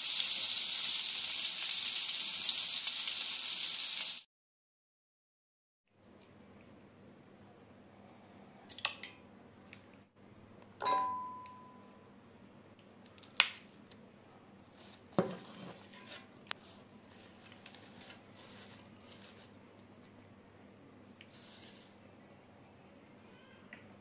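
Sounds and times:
bowl clinking against steel jar: 10.8 - 11.9.

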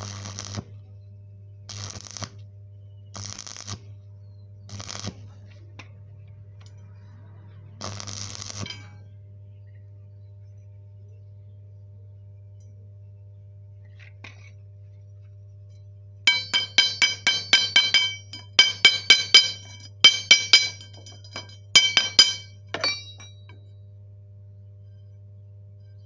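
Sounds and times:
steady low hum: 0.0 - 26.0
hammer tapping on metal: 16.3 - 23.6.

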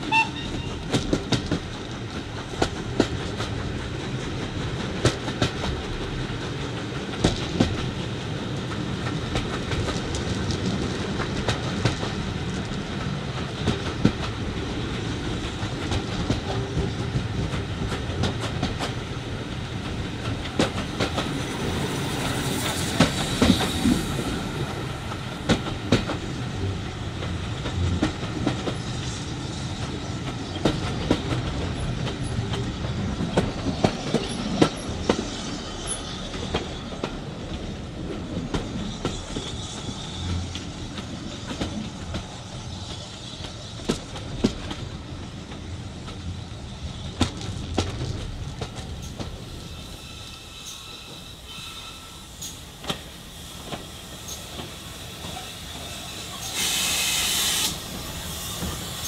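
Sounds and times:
train rumble: 0.0 - 59.0
wheels clacking over rail joints: 0.3 - 56.7
brief hiss: 49.8 - 59.0.

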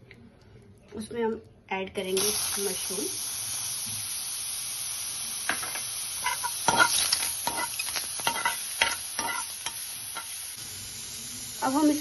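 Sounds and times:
mushrooms sizzling in oil: 2.0 - 12.0
metal spoon scraping a pan: 6.2 - 10.4.

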